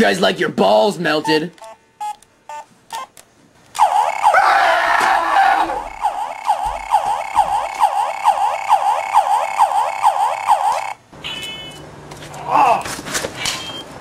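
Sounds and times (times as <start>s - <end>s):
toy blaster electronic warble: 3.8s - 4.4s, 5.7s - 11.0s.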